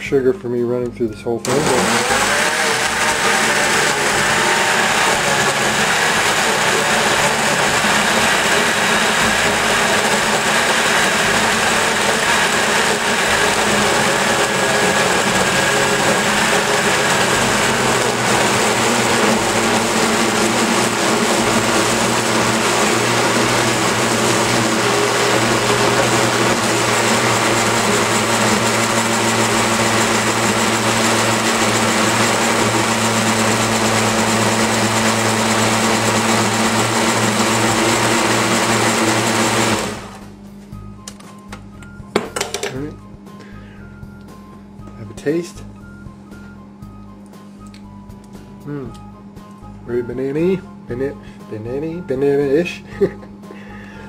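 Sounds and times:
blender running: 0:01.4 - 0:40.3.

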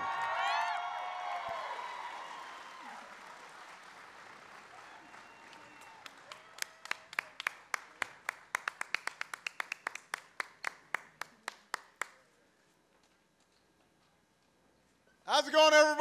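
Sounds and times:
person clapping hands: 0:04.9 - 0:12.2.

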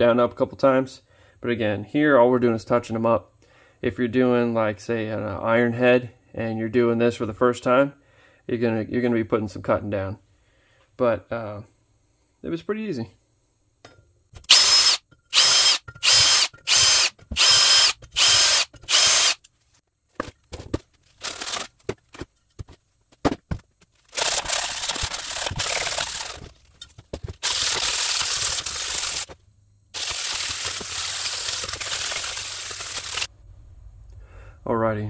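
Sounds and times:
drill whining: 0:14.4 - 0:19.4, 0:24.2 - 0:26.5, 0:27.4 - 0:29.3, 0:30.0 - 0:33.3.

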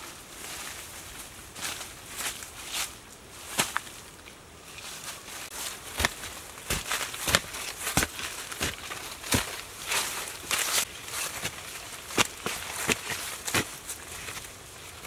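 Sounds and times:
earth clods crumbling: 0:05.4 - 0:15.0.

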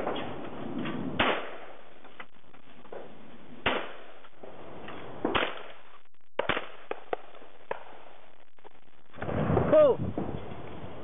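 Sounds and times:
shotgun shot: 0:01.2 - 0:01.8, 0:03.6 - 0:04.1, 0:05.2 - 0:05.8, 0:06.4 - 0:07.9.

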